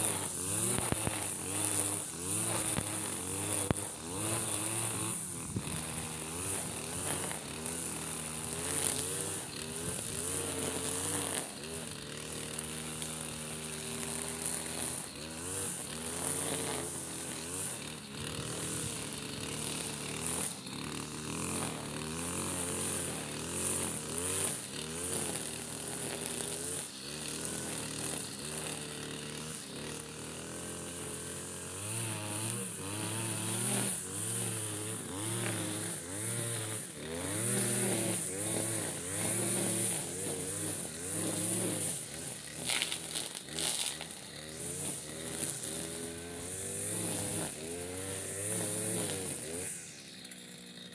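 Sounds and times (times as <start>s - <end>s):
brush cutter engine revving: 0.0s - 50.9s.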